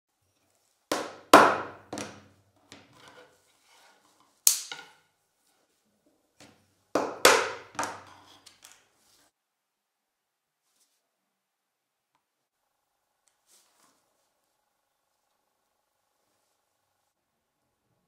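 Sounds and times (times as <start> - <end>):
mallet knocking a chisel: 0.9 - 2.2, 7.0 - 8.1.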